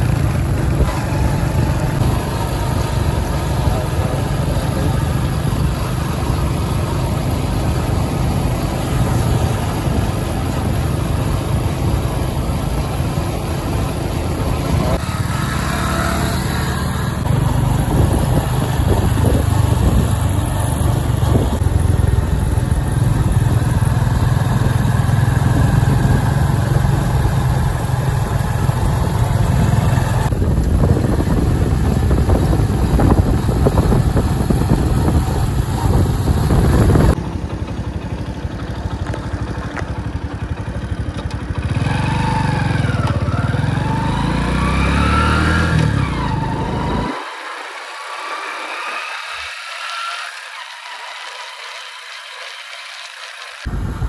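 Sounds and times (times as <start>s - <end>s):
motorcycle engine running: 0.0s - 49.5s, 52.4s - 54.0s.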